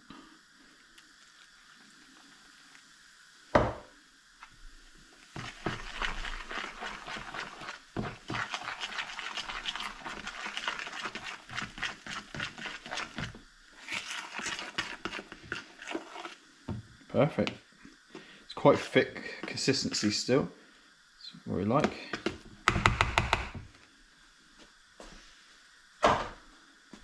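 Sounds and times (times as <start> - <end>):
whisk beating batter in bowl: 5.3 - 16.4.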